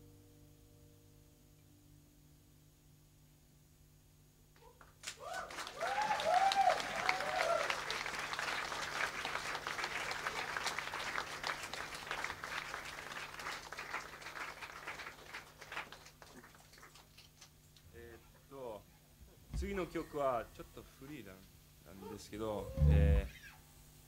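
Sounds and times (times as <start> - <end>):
audience clapping and cheering: 4.8 - 17.5
shouted whoops: 5.1 - 8.0.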